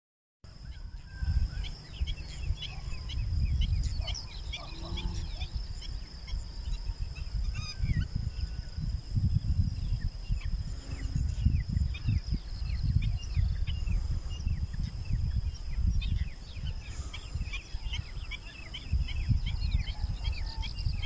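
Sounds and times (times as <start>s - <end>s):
birds chirping: 0.5s - 21.0s
wind buffeting microphone: 0.5s - 21.0s.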